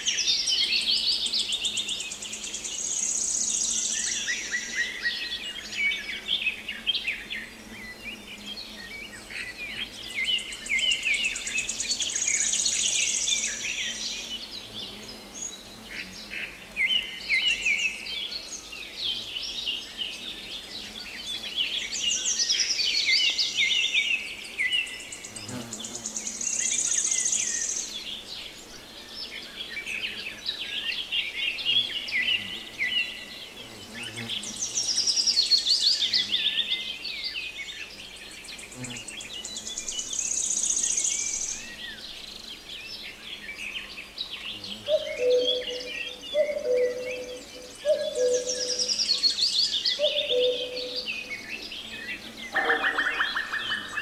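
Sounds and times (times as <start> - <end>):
songbirds singing: 0.0 - 54.0
high pulsing bird trill: 50.0 - 51.0.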